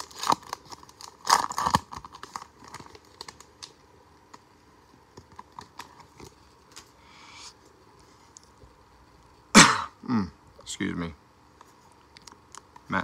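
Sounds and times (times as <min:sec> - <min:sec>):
foil wrapper crinkling: 0:00.0 - 0:04.4.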